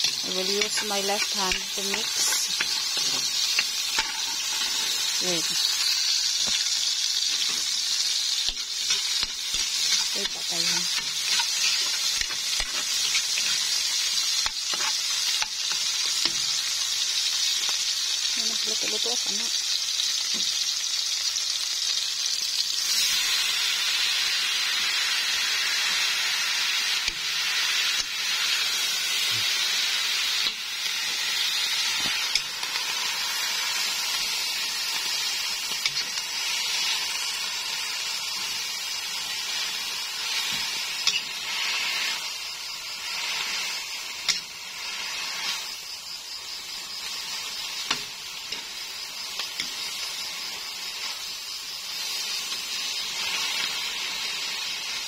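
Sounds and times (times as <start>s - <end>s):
metal tongs clicking on pan: 0.0s - 4.8s
food sizzling in hot oil: 0.0s - 55.0s.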